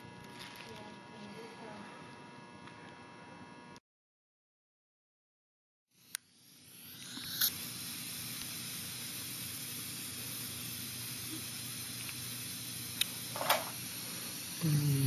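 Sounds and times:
steady hiss: 6.2 - 15.0.

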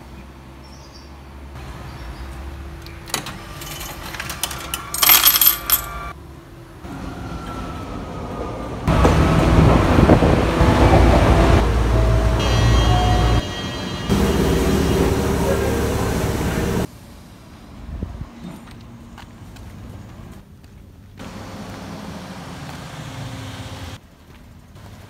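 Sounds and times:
train carriage noise: 1.6 - 24.0
coins clattering in machine: 3.1 - 6.1.

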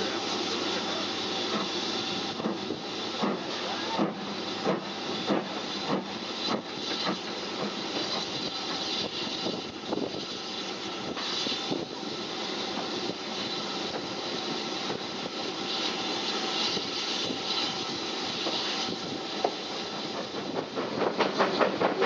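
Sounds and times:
steam train hiss and rumble: 0.0 - 22.0.

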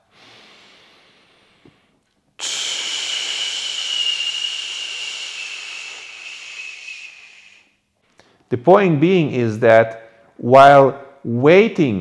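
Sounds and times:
man exhaling hard: 0.0 - 1.8, 2.4 - 7.7
quiet breath: 0.0 - 8.5.

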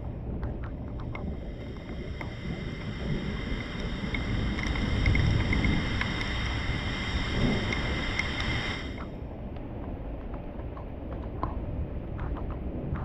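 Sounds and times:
drip ticks: 0.0 - 13.0
heavy rain: 1.6 - 9.0.

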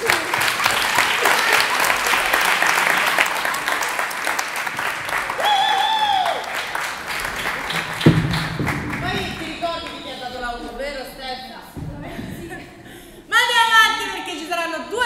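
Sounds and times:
audience applauding: 0.0 - 10.3
thump: 8.0 - 9.4.

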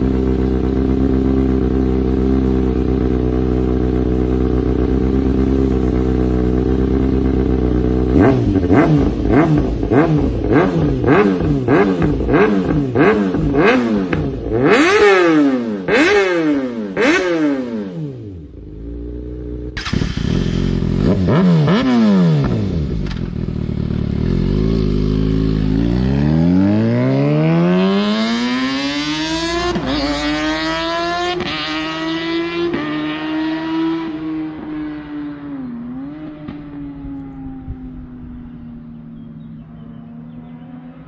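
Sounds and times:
motorcycle engine revving: 0.0 - 41.0.

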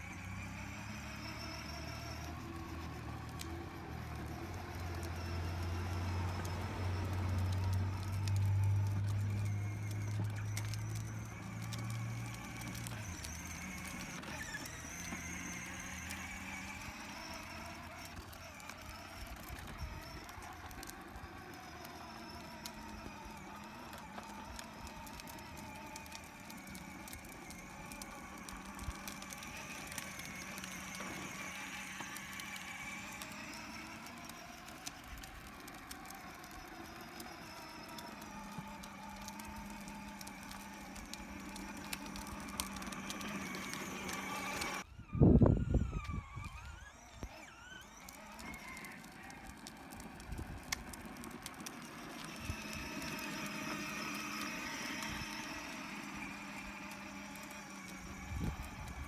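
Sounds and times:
electric motor whine: 0.0 - 59.0
wheels rolling on concrete: 0.0 - 59.0.

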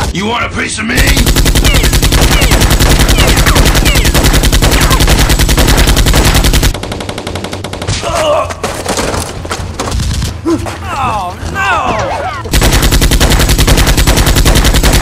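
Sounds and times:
automatic gunfire: 1.0 - 8.0, 12.5 - 15.0.

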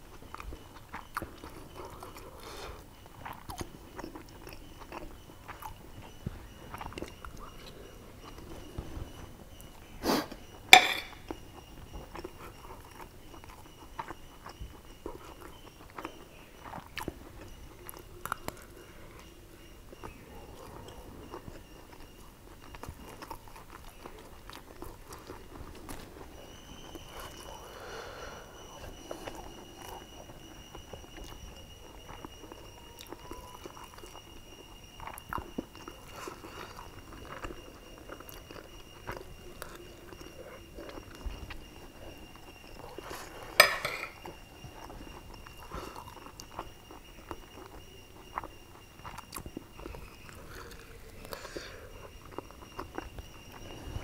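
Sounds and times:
person chewing: 0.1 - 8.8, 9.8 - 19.3, 20.8 - 26.2, 35.0 - 53.7
metal spoon scraping plate: 10.7 - 11.2, 43.5 - 44.2.

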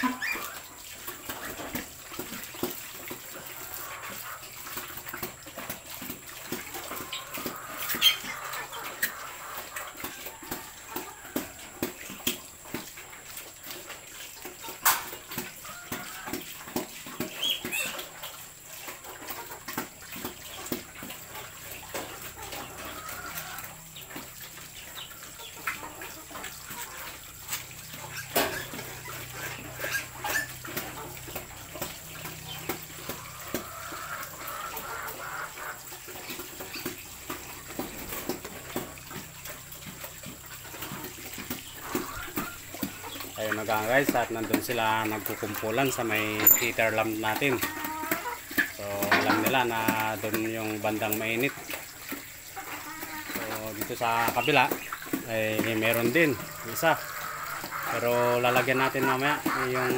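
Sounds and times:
piglet squeals: 0.0 - 0.7, 7.1 - 9.2
sow chewing and slurping: 0.0 - 59.9
clanking of metal feeder: 40.7 - 59.9.

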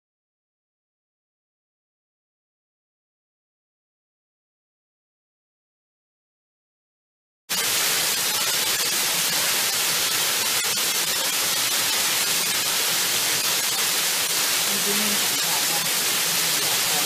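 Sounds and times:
waterfall rushing: 7.5 - 17.0.

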